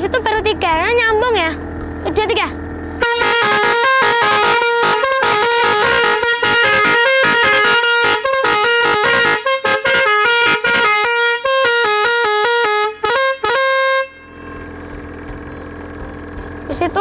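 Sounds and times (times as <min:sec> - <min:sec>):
steady hum: 0:00.0 - 0:17.0
air horn playing a tune: 0:03.0 - 0:14.9.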